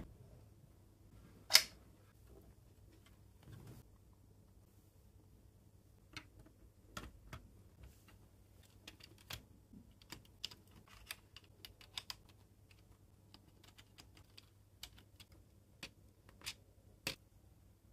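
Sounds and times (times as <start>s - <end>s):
small plastic parts clicking: 8.6s - 17.2s.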